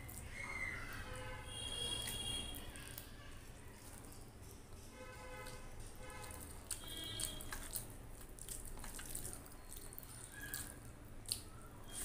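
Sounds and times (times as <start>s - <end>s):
fingers mashing wet food on a plate: 3.7s - 12.0s.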